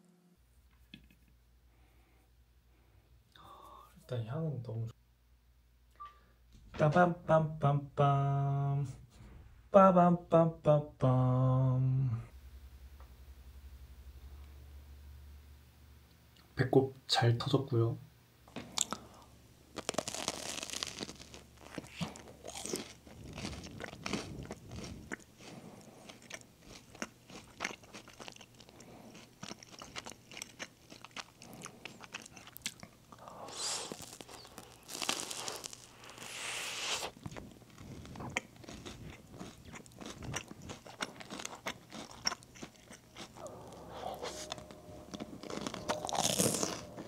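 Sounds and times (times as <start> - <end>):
biting and chewing cake: 19.7 - 47.0.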